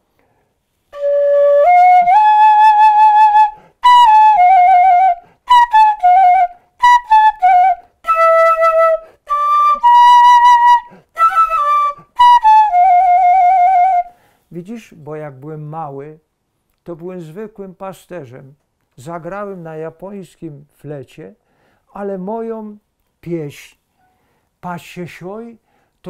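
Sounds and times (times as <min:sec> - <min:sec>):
bamboo flute melody: 0:00.9 - 0:14.1
player breathing: 0:14.1 - 0:14.5, 0:21.5 - 0:21.9.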